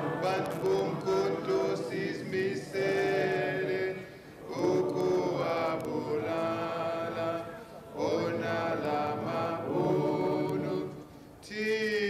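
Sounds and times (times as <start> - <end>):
group of voices singing: 0.0 - 12.0.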